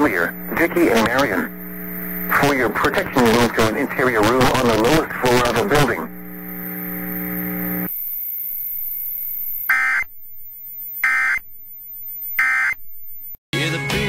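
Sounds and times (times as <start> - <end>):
low buzzing tone: 0.0 - 13.4
screechy digital data tones: 7.8 - 13.4
music: 13.5 - 14.0.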